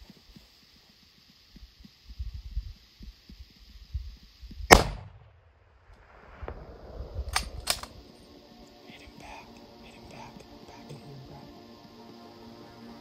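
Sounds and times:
rifle shot: 4.7 - 8.0
quick sharp clicks: 7.2 - 8.0.

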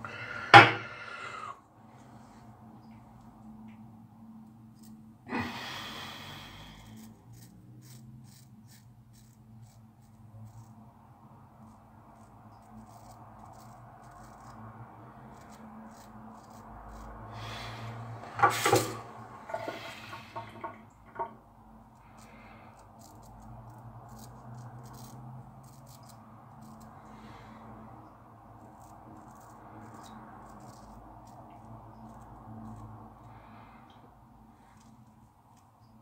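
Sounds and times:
razor scraping stubble: 4.7 - 5.0, 6.7 - 10.9, 11.6 - 17.9, 22.0 - 27.2, 28.6 - 33.1
breathing through the nose: 5.3 - 7.3, 17.2 - 18.8, 33.1 - 35.0.

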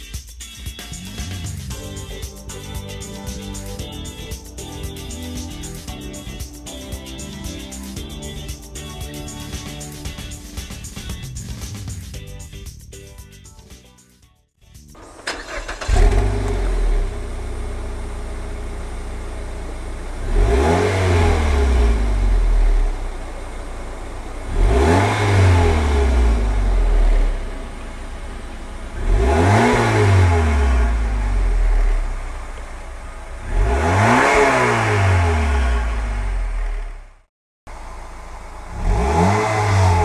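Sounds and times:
engine revving: 0.8 - 6.6, 15.0 - 40.0
car engine starting and idling: 14.9 - 40.0.

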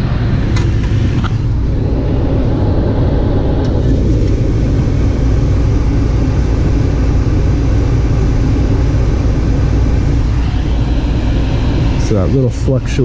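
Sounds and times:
gas furnace low rumble: 0.0 - 13.0.

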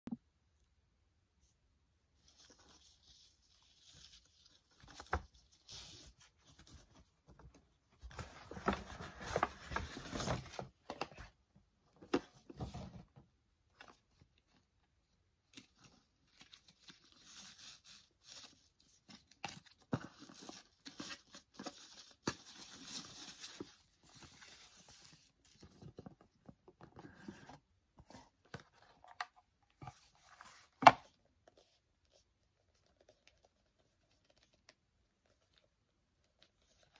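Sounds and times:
paper bag and box rustling: 8.0 - 11.3.

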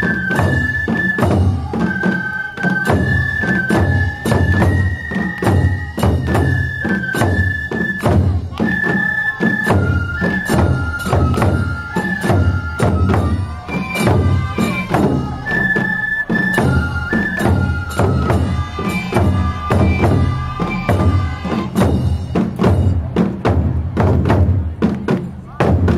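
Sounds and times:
bamboo flutes playing long notes: 0.0 - 22.4
taiko drumming: 0.0 - 25.9.

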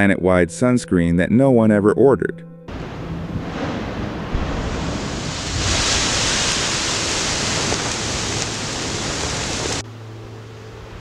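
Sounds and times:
volcano rushing hiss: 2.7 - 9.8.

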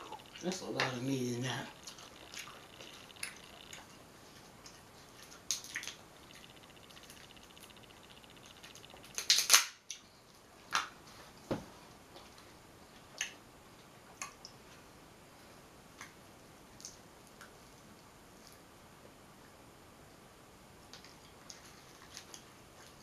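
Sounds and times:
crab shell cracking: 8.4 - 10.0.

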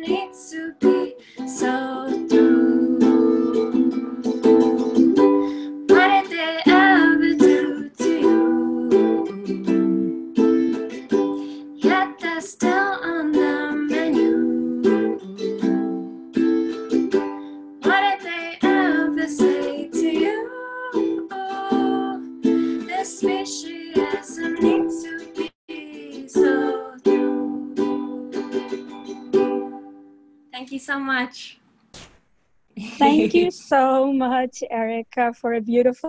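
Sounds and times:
woman singing: 0.0 - 10.3, 11.4 - 16.1, 17.8 - 28.8, 32.8 - 33.5
ukulele strumming: 0.0 - 30.1, 33.0 - 33.5.

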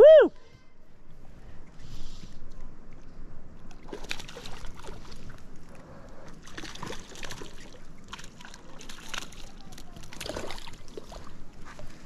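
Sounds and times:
water splashing and dripping: 6.4 - 11.9.

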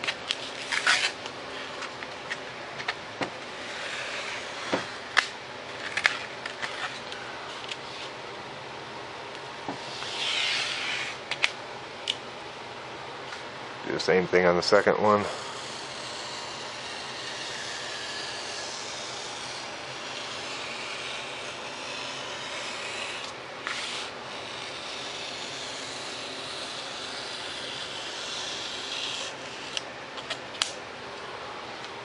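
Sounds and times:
knife cutting foam board: 9.7 - 11.2, 15.4 - 29.8.

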